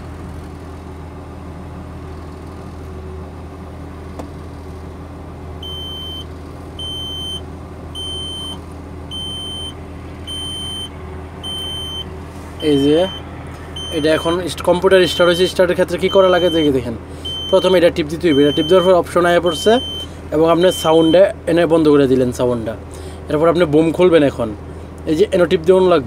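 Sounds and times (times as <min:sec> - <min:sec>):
crane engine humming: 0:00.0 - 0:26.0
high warning beep: 0:05.6 - 0:07.4, 0:08.0 - 0:13.2, 0:13.8 - 0:14.4, 0:15.0 - 0:21.3.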